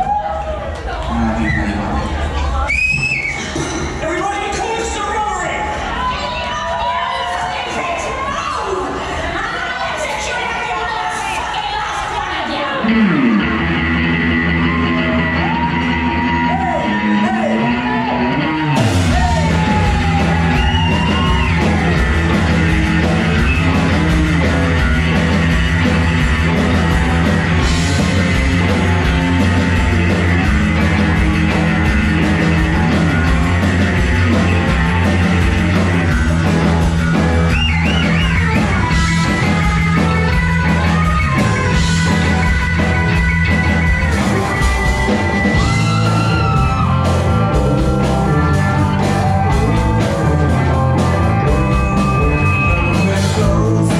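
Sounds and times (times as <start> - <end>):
live rock band playing: 11.0 - 53.9.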